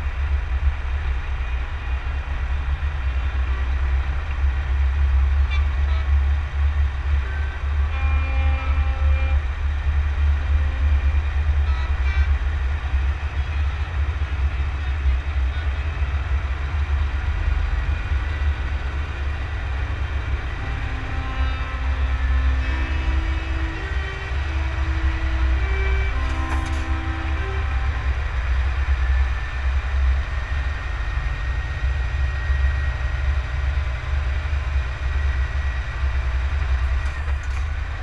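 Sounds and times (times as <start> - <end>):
truck driving rumble: 0.0 - 38.0
horn tones: 7.1 - 9.8, 10.6 - 15.9, 20.0 - 29.6
two-pitch horn tones: 7.2 - 9.5, 10.7 - 12.5, 20.3 - 29.2.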